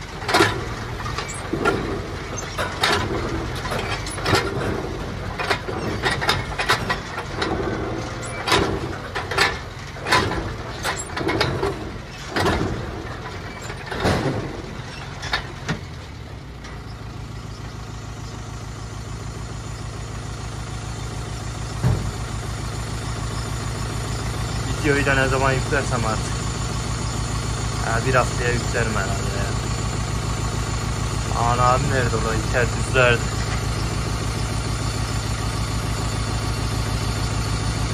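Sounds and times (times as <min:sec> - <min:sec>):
tractor engine running: 0:00.0 - 0:37.9
sharp knocks and clanks: 0:00.2 - 0:16.0, 0:21.8 - 0:22.3.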